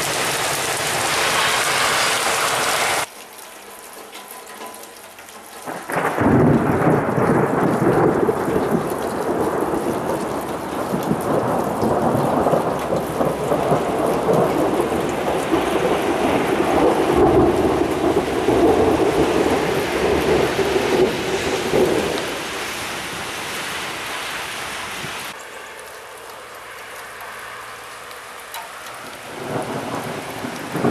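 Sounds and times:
thunder rumbling: 0:05.6 - 0:23.4, 0:28.9 - 0:30.9.

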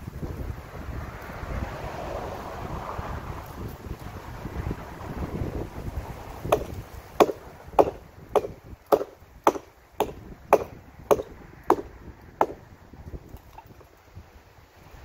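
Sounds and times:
hatchet chopping wood: 0:06.4 - 0:12.6.

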